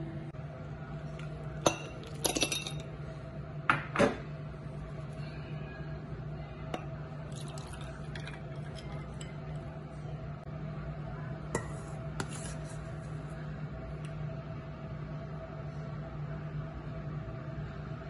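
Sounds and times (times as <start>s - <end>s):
milk pouring over ice: 7.2s - 9.2s.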